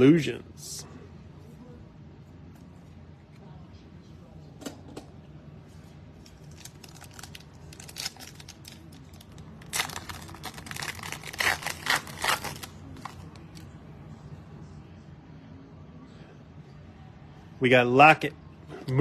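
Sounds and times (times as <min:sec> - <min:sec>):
foil wrapper tearing and crinkling: 0:06.4 - 0:13.2.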